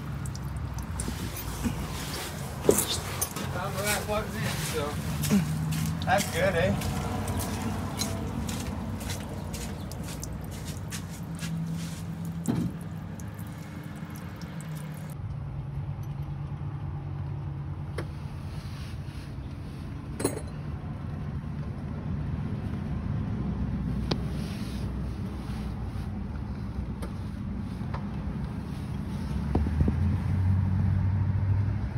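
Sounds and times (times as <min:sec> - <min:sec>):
truck engine hum: 0:00.0 - 0:18.6.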